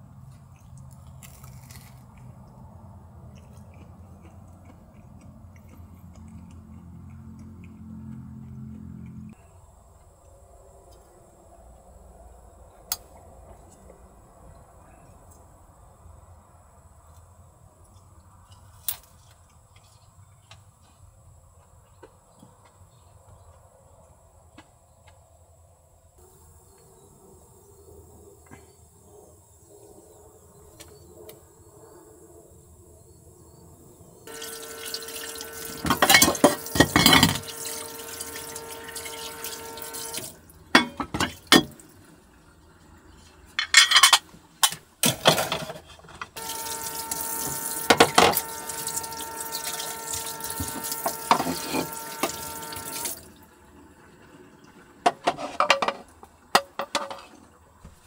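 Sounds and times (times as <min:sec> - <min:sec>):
tap water running into sink: 0:34.3 - 0:41.9, 0:46.4 - 0:53.4
dishes clattering: 0:40.8 - 0:41.8, 0:43.6 - 0:46.3, 0:55.1 - 0:57.3.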